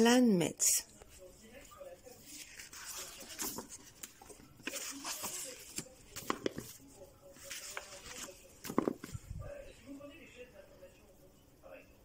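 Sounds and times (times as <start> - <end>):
book pages turning: 0.9 - 9.3.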